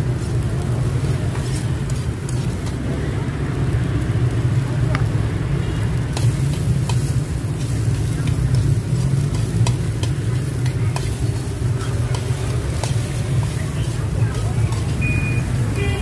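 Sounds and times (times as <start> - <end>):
light sizzle: 0.0 - 16.0
ladle clicking against pan: 6.1 - 15.0
metal ladle scraping a wok: 6.2 - 15.0.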